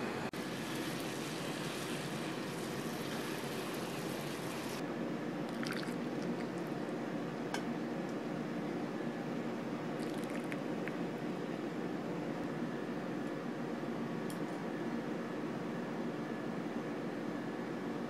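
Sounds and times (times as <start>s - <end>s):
gas flame hissing: 0.0s - 4.8s.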